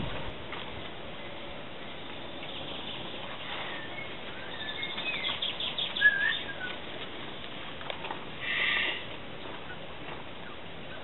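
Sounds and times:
fledgling blackbird chirping: 0:01.9 - 0:07.5, 0:08.4 - 0:11.0.

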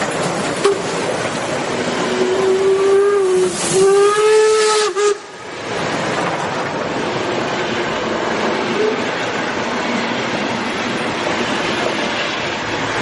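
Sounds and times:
train rumbling and clattering: 0:00.0 - 0:13.0
train whistle blasts: 0:02.1 - 0:05.3.

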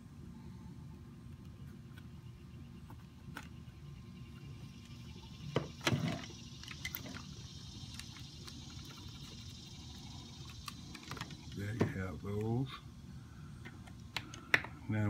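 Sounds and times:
wires clicking and rustling: 0:05.8 - 0:09.6, 0:10.4 - 0:11.8.

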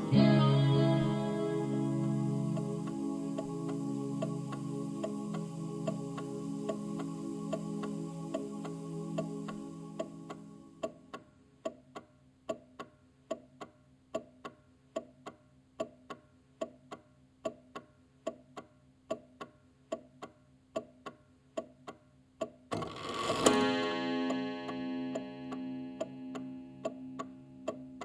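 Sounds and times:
held music notes: 0:00.0 - 0:11.1, 0:23.3 - 0:28.0
clock ticking: 0:00.0 - 0:28.0.

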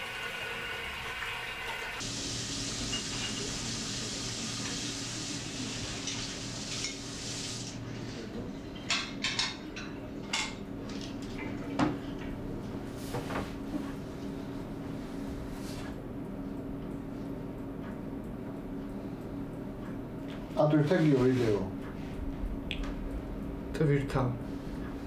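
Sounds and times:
water running from tap: 0:00.0 - 0:07.8
dishes and cutlery clattering: 0:02.9 - 0:03.6, 0:08.6 - 0:11.1.

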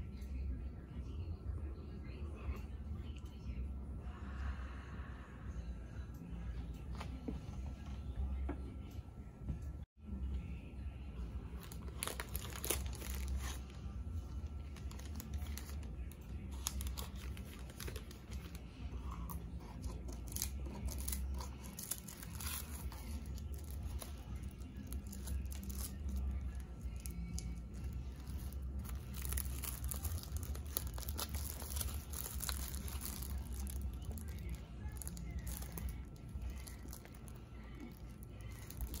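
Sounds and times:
low background hum: 0:00.0 - 0:39.0
paper and plastic crinkling: 0:11.6 - 0:13.9, 0:14.5 - 0:39.0.

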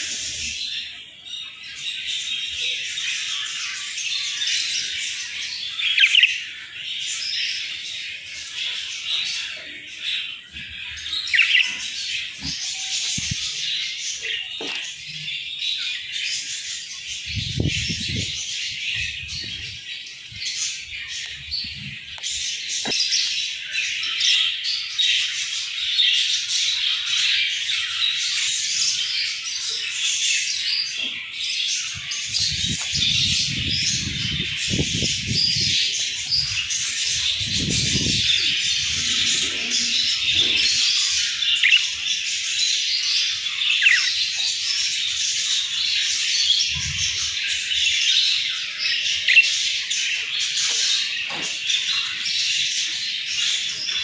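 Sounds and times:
budgerigars chirping: 0:05.6 - 0:06.4, 0:10.2 - 0:14.8, 0:32.2 - 0:46.0, 0:47.5 - 0:51.4.

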